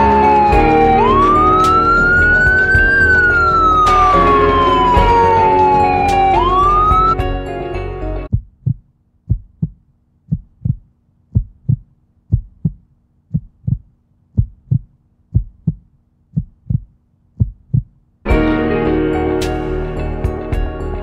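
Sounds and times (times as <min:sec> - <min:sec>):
heartbeat thumps: 0:08.3 - 0:18.0.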